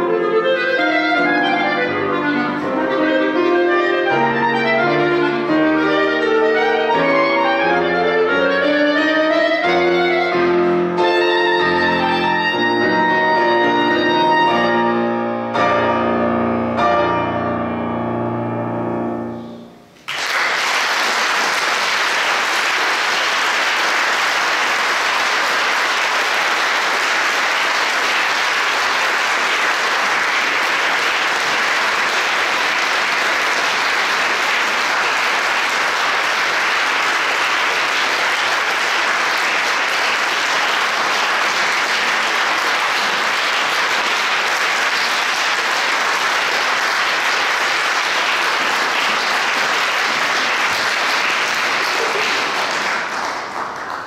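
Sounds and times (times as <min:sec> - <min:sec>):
audience applauding: 0:20.0 - 0:54.0.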